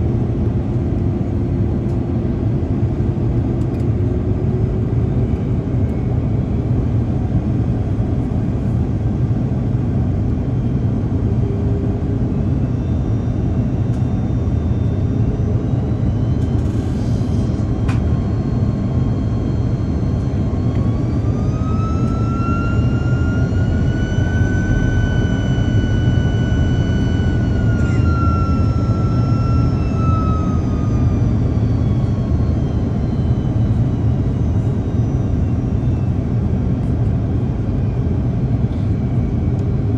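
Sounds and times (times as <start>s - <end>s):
aircraft cabin rumble: 0.0s - 39.9s
jet engine whine: 0.0s - 39.9s.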